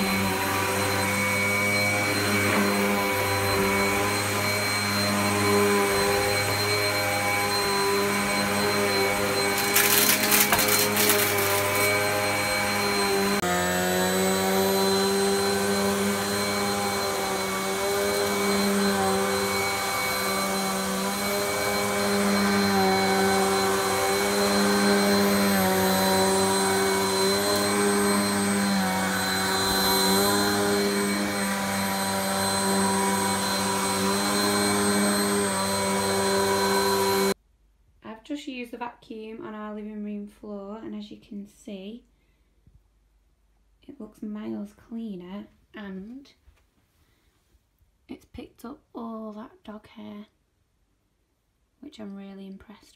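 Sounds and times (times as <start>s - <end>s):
upright vacuum cleaner running: 0.0s - 37.4s.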